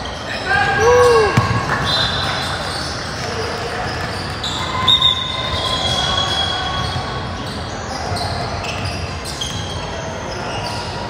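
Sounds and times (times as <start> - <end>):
court noise: 0.0 - 11.0
basketball dribbling on court: 1.4 - 1.8.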